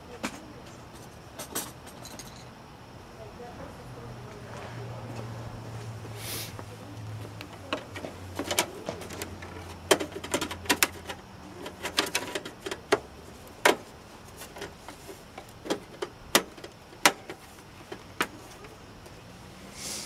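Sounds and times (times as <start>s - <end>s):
clicks and taps of plastic parts: 7.4s - 13.8s.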